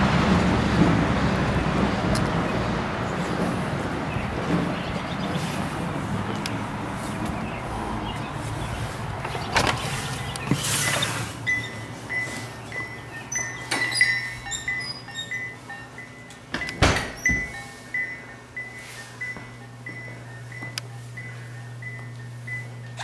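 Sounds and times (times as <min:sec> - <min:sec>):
low outdoor rumble: 0:00.0 - 0:23.0
high chiming music: 0:11.5 - 0:20.6.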